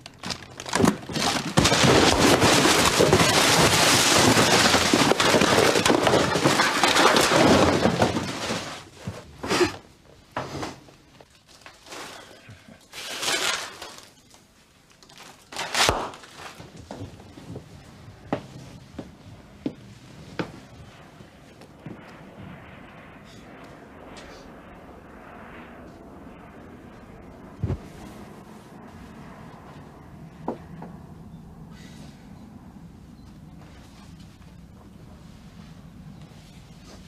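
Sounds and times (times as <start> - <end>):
rummaging through cardboard boxes: 0.0 - 9.8.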